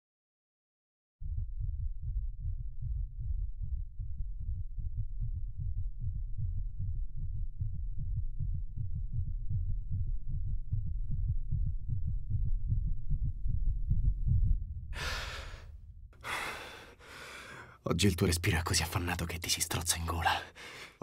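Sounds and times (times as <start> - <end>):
heartbeat thumping: 1.2 - 16.2
gasping laboured breaths: 14.9 - 17.8, 20.3 - 21.0.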